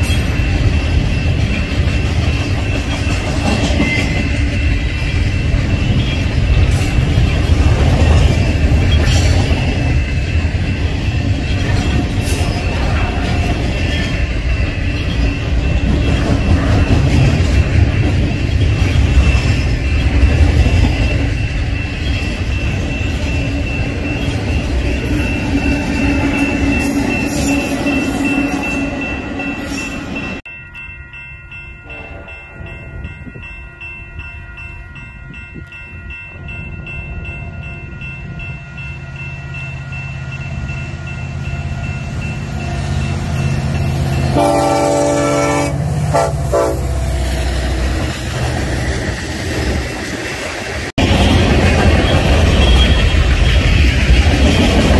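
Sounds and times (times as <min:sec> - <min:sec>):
crossing bells ringing: 0:00.0 - 0:54.9
train wheels rumbling on rail: 0:00.0 - 0:54.9
train air horn: 0:44.3 - 0:47.1.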